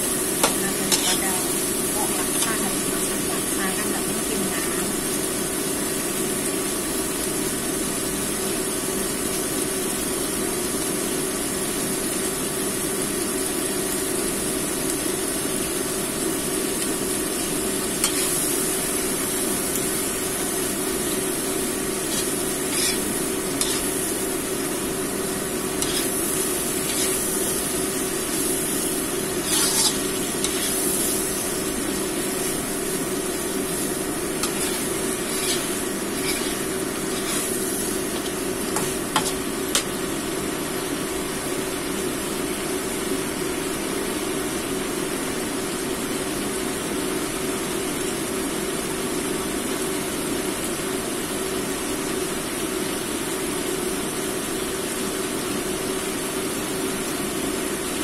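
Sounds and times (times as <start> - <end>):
food sizzling in a wok: 0.0 - 58.0
steady low hum: 16.4 - 41.4
metal spatula scraping pan: 18.0 - 18.5, 22.1 - 24.1, 25.8 - 26.2, 26.8 - 27.3, 29.4 - 31.5, 34.4 - 39.4.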